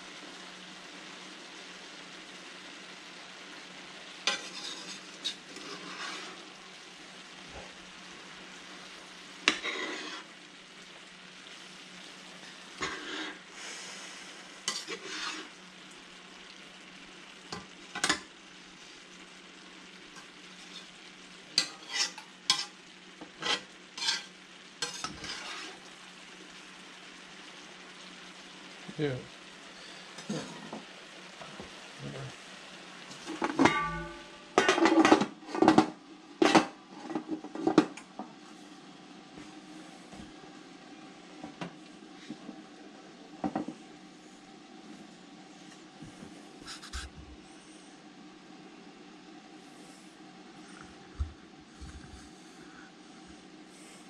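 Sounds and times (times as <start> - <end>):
food sizzling in a frying pan: 0.0 - 54.0
metal spatula scraping a pan: 4.2 - 6.6, 9.4 - 10.4, 12.4 - 13.5, 14.6 - 15.6, 20.1 - 21.0, 21.6 - 25.9, 30.1 - 30.8, 33.2 - 35.8.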